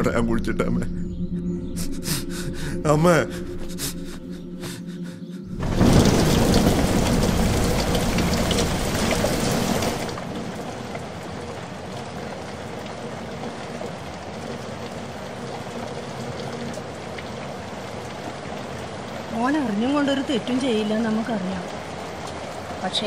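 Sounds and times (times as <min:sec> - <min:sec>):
falling water: 0:05.5 - 0:23.0.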